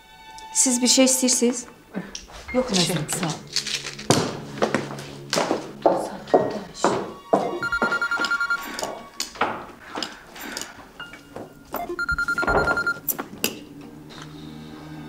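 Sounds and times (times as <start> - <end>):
phone electronic ringtone: 7.6 - 8.8, 11.8 - 13.0.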